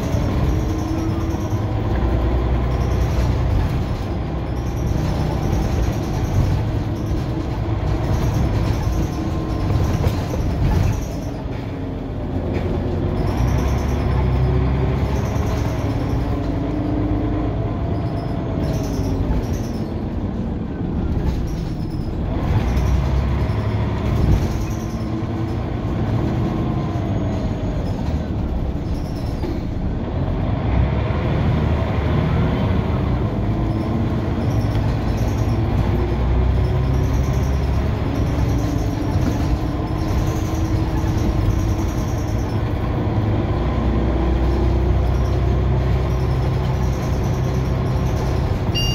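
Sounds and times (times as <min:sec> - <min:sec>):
bus engine rumble: 0:00.0 - 0:48.9.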